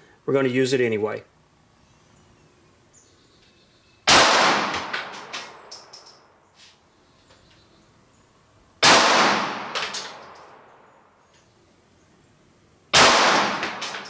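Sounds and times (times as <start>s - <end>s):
pistol shots: 4.1s - 5.6s, 8.8s - 10.6s, 12.9s - 14.0s.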